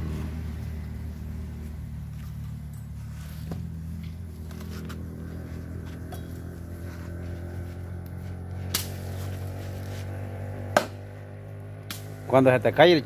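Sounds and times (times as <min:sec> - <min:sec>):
low motor hum: 0:00.0 - 0:13.0
blade chopping firewood: 0:08.1 - 0:11.2.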